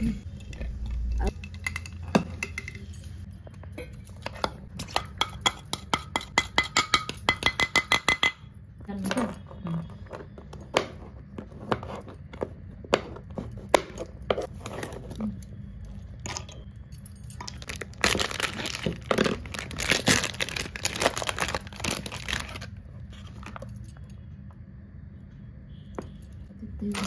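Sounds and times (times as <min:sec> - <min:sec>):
plastic packet tearing and crinkling: 0:17.5 - 0:22.8.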